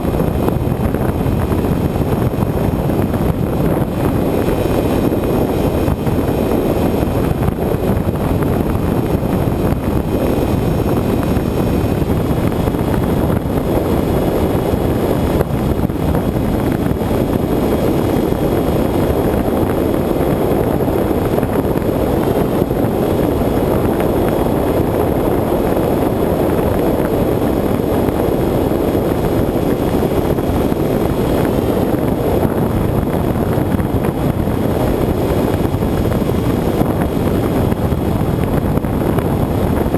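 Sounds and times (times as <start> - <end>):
airflow rushing: 0.0 - 39.9
electric motor and propeller drone: 0.0 - 39.9.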